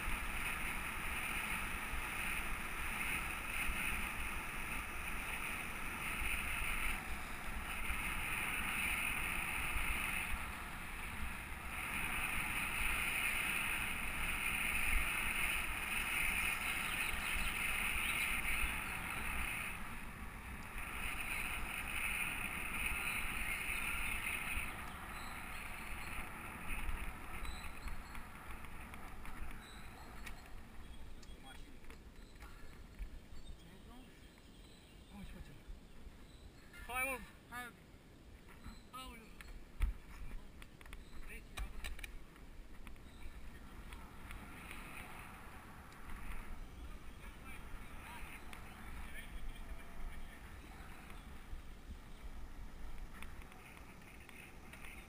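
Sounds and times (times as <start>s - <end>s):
high hiss: 0.0s - 30.8s
wind and tyre noise: 0.0s - 55.0s.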